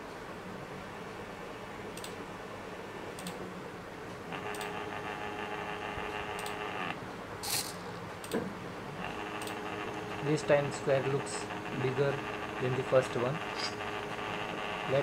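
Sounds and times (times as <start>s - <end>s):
motor buzz: 4.3s - 7.0s, 9.0s - 15.0s
stepper motors whirring: 9.0s - 15.0s.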